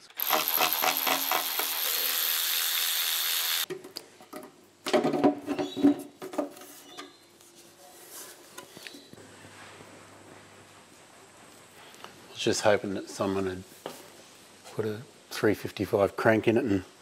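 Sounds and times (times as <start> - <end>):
air ratchet spinning: 0.0 - 3.7.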